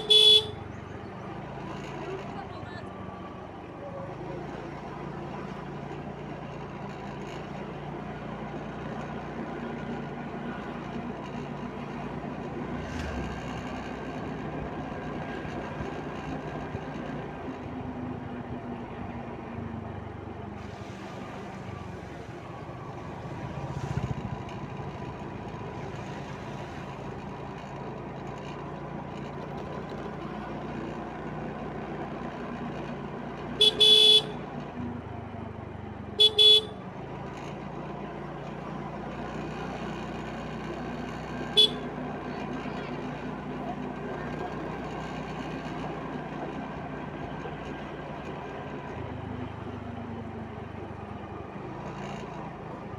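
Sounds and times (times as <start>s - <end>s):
scooter horn beeps: 0.0s - 0.8s, 33.6s - 34.4s, 36.2s - 36.8s, 41.5s - 42.0s
scooter engine hum: 0.0s - 12.8s, 13.8s - 52.9s
wind and road noise: 0.0s - 52.9s.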